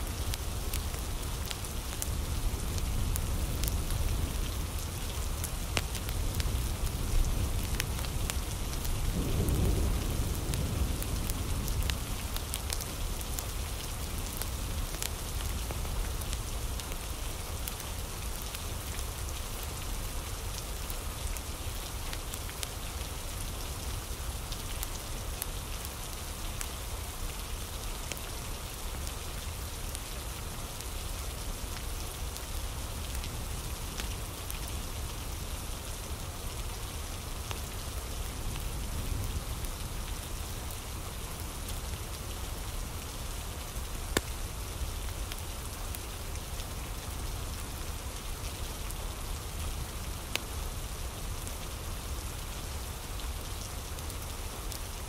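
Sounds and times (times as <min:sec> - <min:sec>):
rain falling on a surface: 0:00.0 - 0:55.0
low rumble of thunder: 0:06.0 - 0:15.5.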